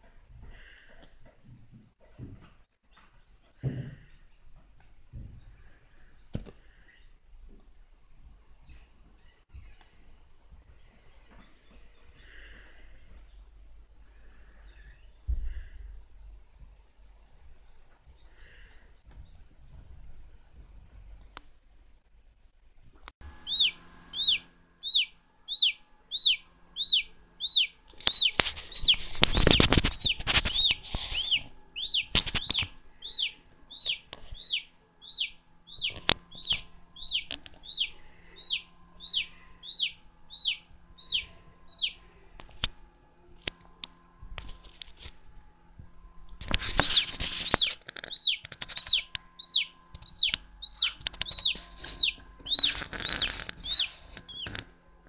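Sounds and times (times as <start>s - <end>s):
chick peeping: 23.3s - 42.2s, 46.4s - 54.7s
rustling and scraping: 27.8s - 32.9s, 41.3s - 50.1s, 51.0s - 55.0s.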